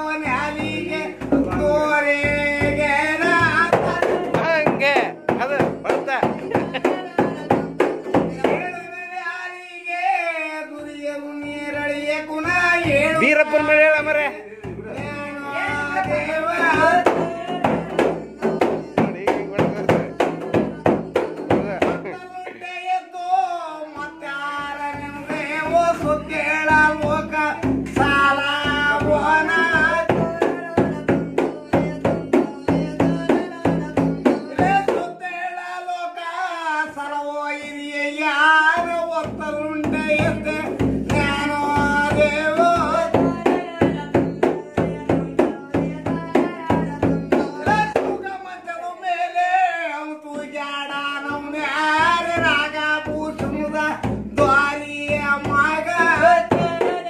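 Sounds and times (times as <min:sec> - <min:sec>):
frame drum beating: 0:00.0 - 0:08.8, 0:11.7 - 0:22.6, 0:24.0 - 0:35.1, 0:38.7 - 0:48.4, 0:51.3 - 0:57.0
man singing devotional song: 0:00.0 - 0:57.0.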